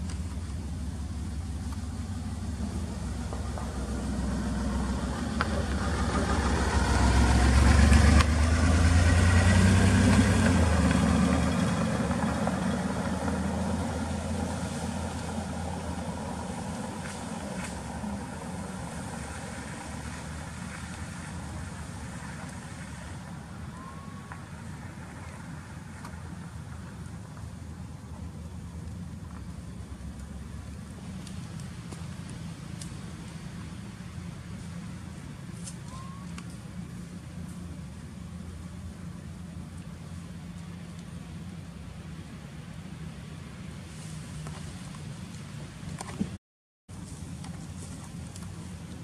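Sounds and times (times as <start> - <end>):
car driving past: 0.7 - 26.8.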